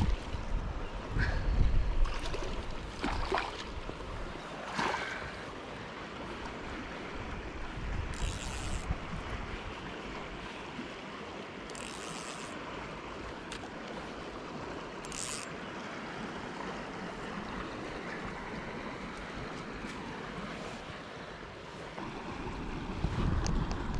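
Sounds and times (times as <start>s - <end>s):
wind buffeting microphone: 0.0s - 4.4s, 7.0s - 10.0s, 22.3s - 23.9s.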